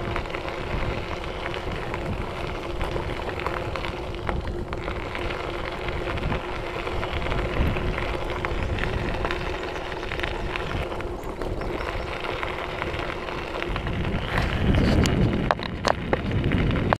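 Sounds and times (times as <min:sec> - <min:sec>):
bike clicks and rattles: 0:00.0 - 0:16.9
bike tyres crunching on gravel: 0:00.0 - 0:16.9.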